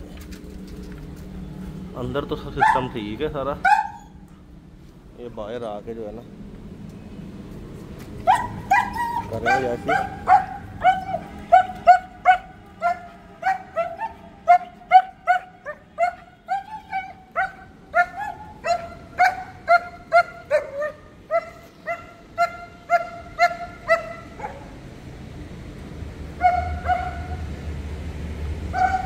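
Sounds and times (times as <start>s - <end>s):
dogs barking: 2.4s - 4.3s, 8.2s - 24.9s, 26.3s - 27.6s, 28.6s - 29.0s.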